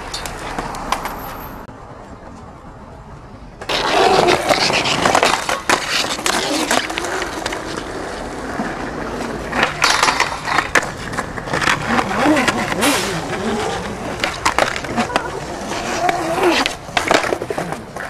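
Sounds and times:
skateboard wheels rolling on brick: 3.5s - 18.0s
skateboard clacking on rail: 9.5s - 18.0s.

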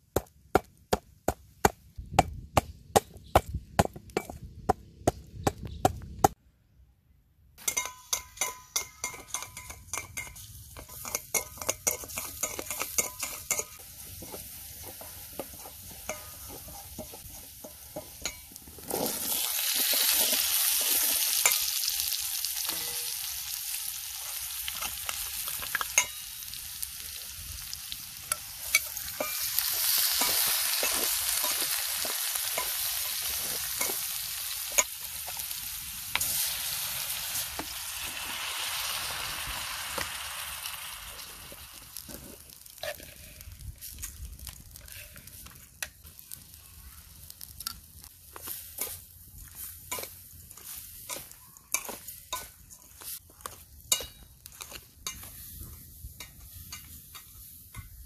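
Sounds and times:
garlic sizzling in metal bowl: 7.6s - 58.0s.

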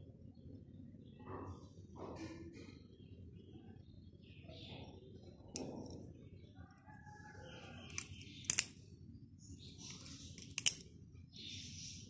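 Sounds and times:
butterfly knife clicking: 7.9s - 8.8s, 9.9s - 10.9s.

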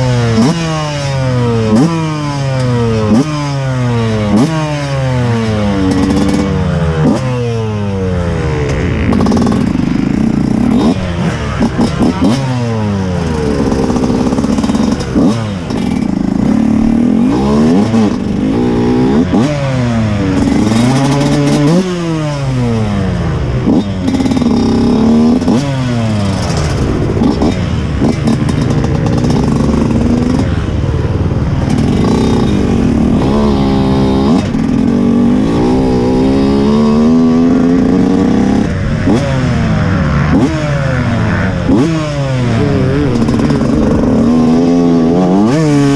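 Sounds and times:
motocross engine revving: 0.0s - 45.9s.

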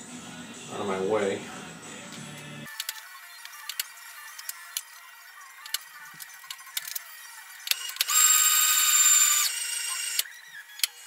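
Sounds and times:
motor whining: 3.8s - 11.0s.

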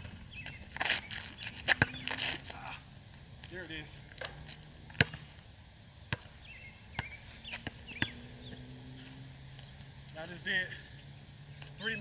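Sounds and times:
basketball bouncing on asphalt: 0.0s - 2.5s, 3.1s - 9.9s
bird chirps: 0.3s - 2.2s, 6.4s - 9.8s.

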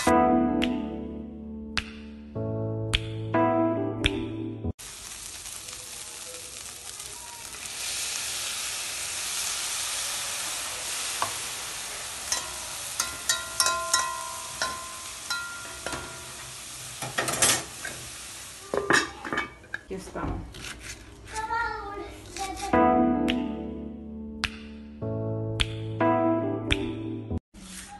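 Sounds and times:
meat sizzling in a pan: 4.8s - 19.3s
metal spoon scraping a pan: 12.3s - 18.1s.

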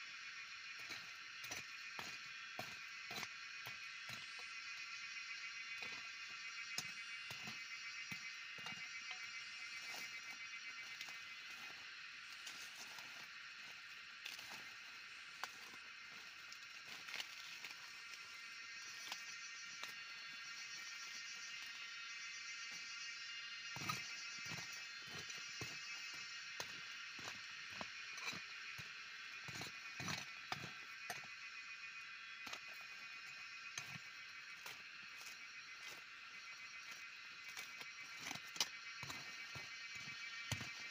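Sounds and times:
high-pitched animal chorus: 0.0s - 40.9s
insects buzzing: 0.0s - 40.9s
hand tool chopping soil: 0.8s - 4.5s, 6.7s - 9.1s, 23.7s - 31.3s, 37.5s - 40.9s
maize stalks snapping and rustling: 12.3s - 20.1s.

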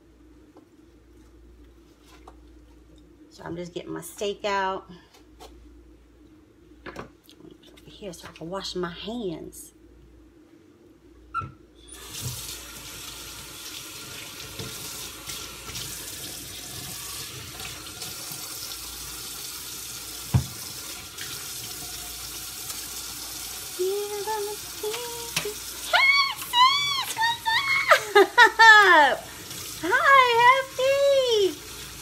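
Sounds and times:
tap water running: 11.8s - 32.0s
person speaking: 23.8s - 31.6s.

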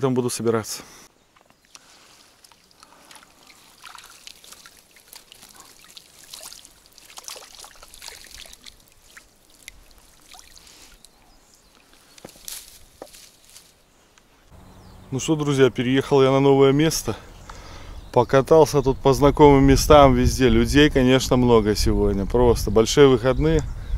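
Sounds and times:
water trickling and dripping: 1.4s - 13.2s.

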